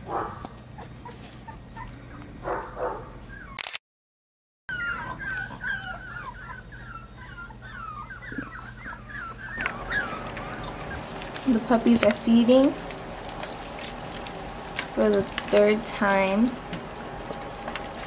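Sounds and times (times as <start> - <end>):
puppies whimpering and yipping: 0.6 - 2.4, 3.2 - 3.6, 4.7 - 14.6.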